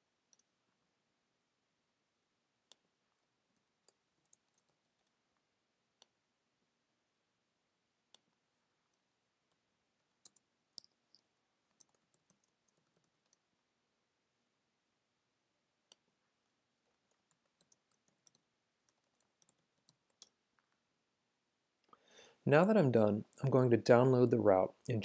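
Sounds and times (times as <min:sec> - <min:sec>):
computer mouse clicks: 0:02.7 - 0:05.2, 0:09.5 - 0:13.4, 0:16.9 - 0:20.4.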